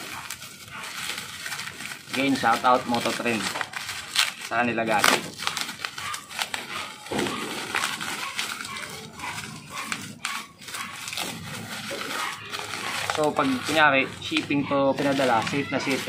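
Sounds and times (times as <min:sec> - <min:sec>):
bubble wrap crinkling: 0:00.0 - 0:16.0.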